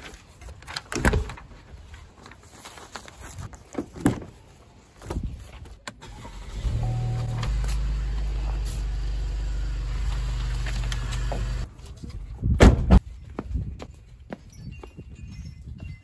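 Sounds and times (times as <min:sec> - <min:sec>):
car engine starting and idling: 0:05.9 - 0:11.7.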